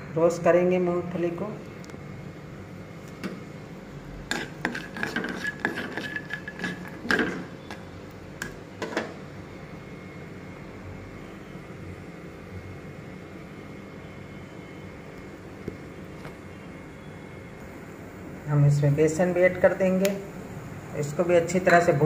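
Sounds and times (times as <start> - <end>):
spatula stirring peanuts in a pan: 4.3 - 7.1.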